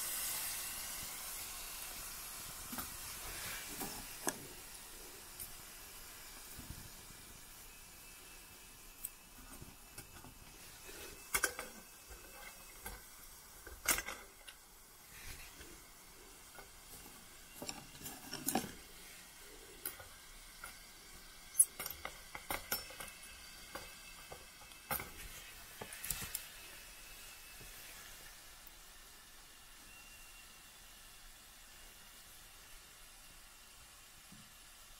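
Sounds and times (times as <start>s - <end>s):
meat frying in a pan: 0.0s - 34.9s
spatula scraping a pan: 9.9s - 13.1s.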